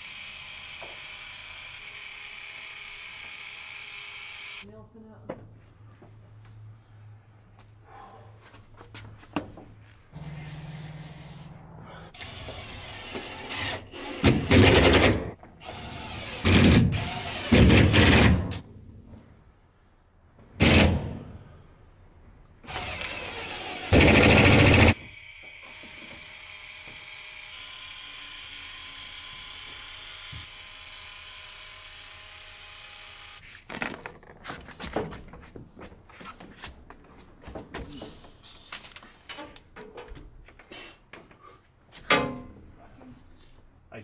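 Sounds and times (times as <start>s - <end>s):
power driver driving screws: 12.2s - 18.6s, 22.7s - 34.0s.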